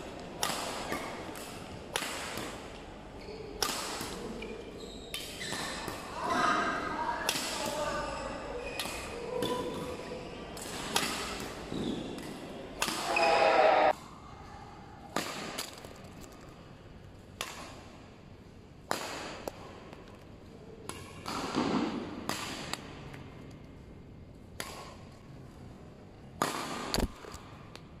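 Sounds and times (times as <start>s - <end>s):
badminton racket striking shuttlecock: 0.4s - 2.7s, 10.6s - 13.9s, 24.6s - 25.0s.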